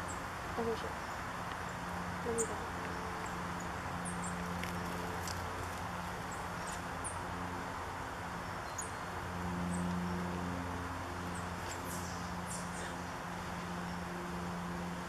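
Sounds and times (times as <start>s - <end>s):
songbird call notes: 0.0s - 4.4s
low mechanical hum: 0.0s - 15.0s.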